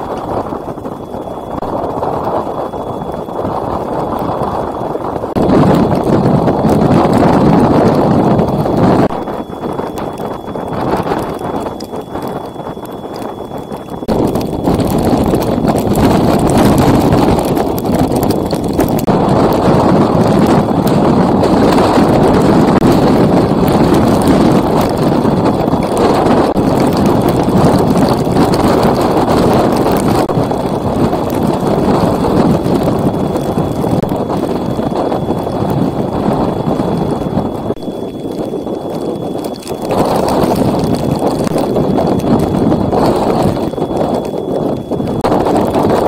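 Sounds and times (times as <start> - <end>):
wind buffeting microphone: 0.0 - 46.0.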